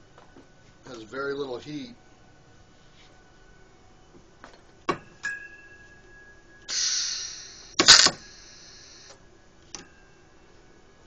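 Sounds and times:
loud crack of arc weld: 0:06.7 - 0:09.2
shielding gas hissing: 0:06.7 - 0:09.3
welder clicks: 0:07.8 - 0:08.3.

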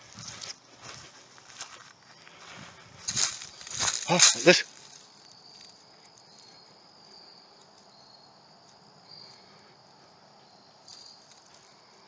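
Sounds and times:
insect chirps: 0:00.0 - 0:12.0
insect trilling: 0:03.0 - 0:12.0.

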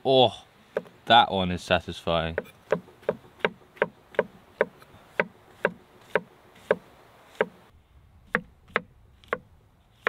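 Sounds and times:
knife chopping on wooden board: 0:02.4 - 0:07.6.

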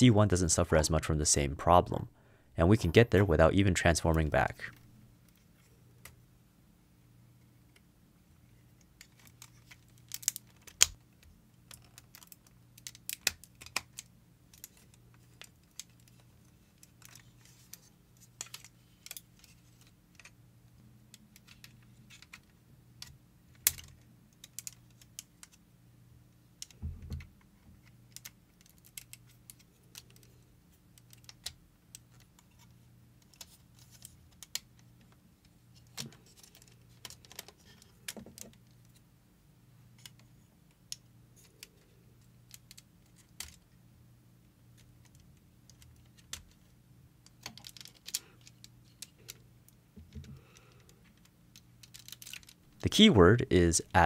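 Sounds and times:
plastic and metal parts clicking: 0:35.8 - 0:39.0, 0:47.2 - 0:49.4, 0:50.0 - 0:52.6.

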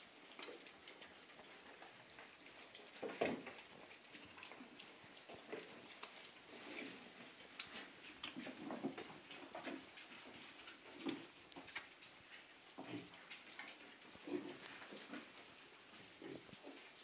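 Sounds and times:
piglets chewing: 0:00.0 - 0:17.0
piglets grunting softly: 0:14.1 - 0:15.4, 0:16.1 - 0:16.8.

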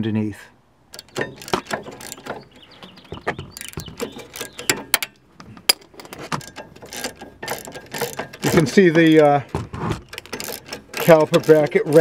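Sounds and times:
ratchet clicking on metal: 0:00.9 - 0:09.5, 0:10.1 - 0:12.0.

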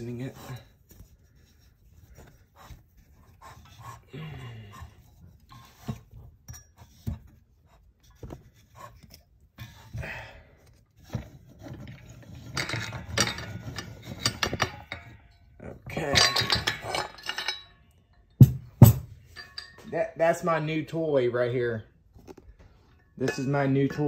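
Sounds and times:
metal scraping and rattling: 0:10.8 - 0:21.2, 0:22.3 - 0:24.0
metal tools knocking on metal: 0:11.2 - 0:20.0, 0:22.9 - 0:24.0.

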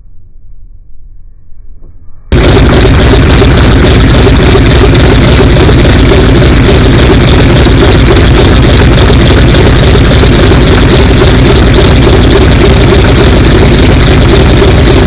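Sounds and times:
faint low rumble: 0:00.0 - 0:15.0
propeller plane engine running: 0:02.3 - 0:15.0.

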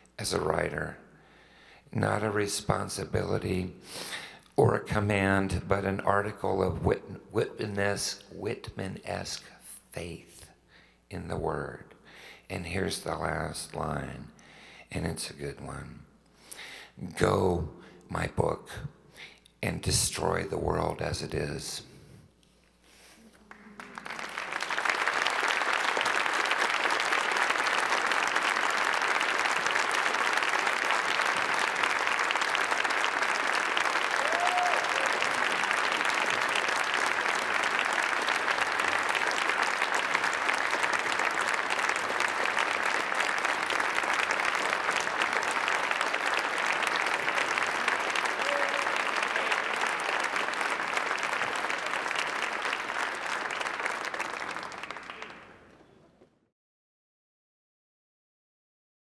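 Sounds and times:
large audience applauding: 0:23.3 - 0:55.7.

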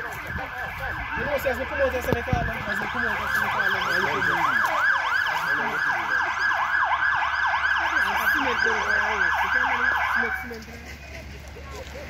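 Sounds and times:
fire engine siren yelping: 0:00.0 - 0:10.7.

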